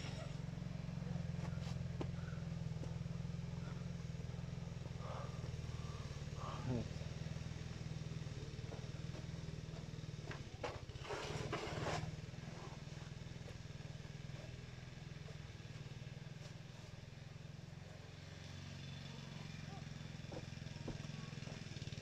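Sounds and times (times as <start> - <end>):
low motor hum: 0.0 - 22.0
rustling and scraping: 10.3 - 13.6.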